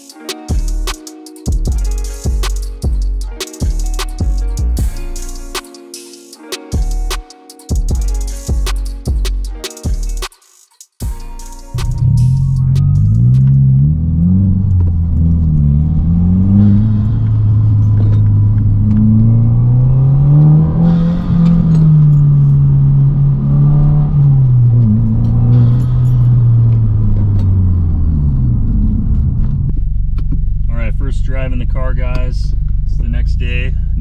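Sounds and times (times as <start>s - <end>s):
car engine revving inside cabin: 11.7s - 34.0s.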